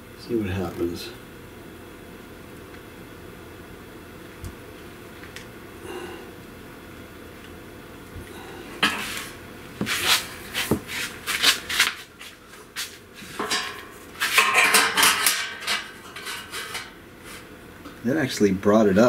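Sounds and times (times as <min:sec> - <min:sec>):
metal clanking and scraping: 0:08.8 - 0:09.3, 0:13.2 - 0:17.0.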